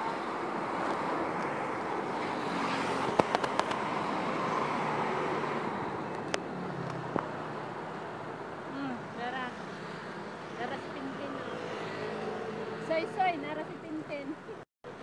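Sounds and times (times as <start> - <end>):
traffic noise: 0.0 - 15.0
sharp clicks: 3.1 - 3.8.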